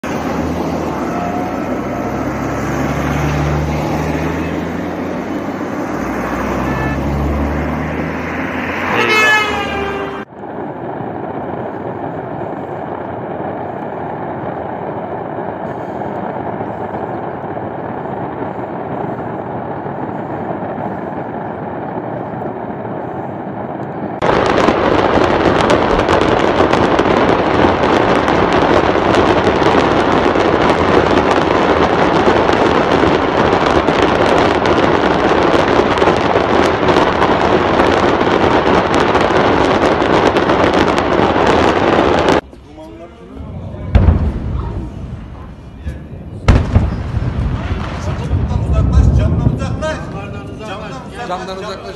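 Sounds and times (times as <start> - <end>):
steady rushing noise: 0.0 - 51.9
vehicles: 0.0 - 51.9
car horn: 6.2 - 7.4, 8.6 - 10.3
loud dense even noise: 41.6 - 51.9.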